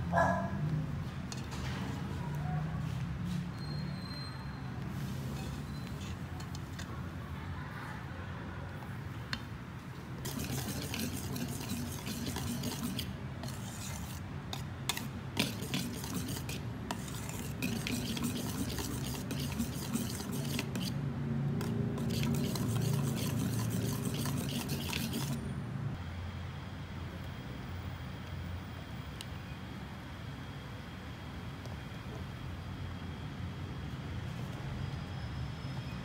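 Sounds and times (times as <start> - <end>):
spatula scraping batter in bowl: 10.2 - 21.0, 21.6 - 25.5.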